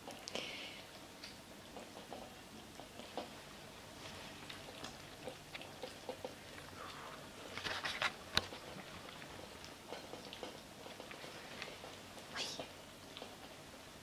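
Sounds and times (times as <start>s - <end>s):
teeth clicking on food and bowls: 0.0s - 3.4s, 4.4s - 7.0s, 8.3s - 12.0s
kittens chewing: 0.0s - 14.0s.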